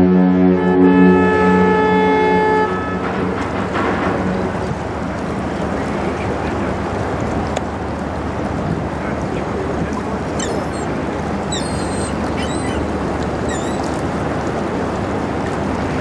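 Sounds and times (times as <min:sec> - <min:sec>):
ship passing close by: 0:00.0 - 0:16.0
short high bird calls: 0:10.3 - 0:14.0.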